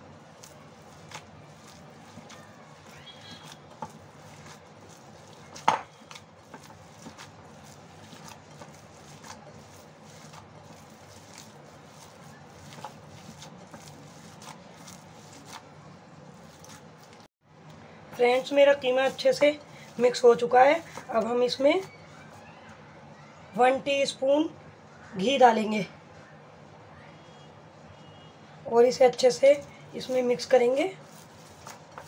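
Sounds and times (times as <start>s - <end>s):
hands squishing minced meat: 0.0s - 17.3s, 18.2s - 22.6s, 29.4s - 32.0s.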